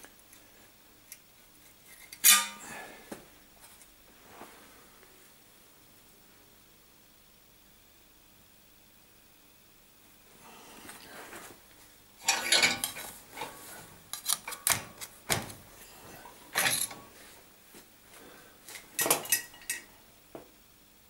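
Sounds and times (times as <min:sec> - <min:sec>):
sheet steel clanking against vise: 0:12.2 - 0:13.6.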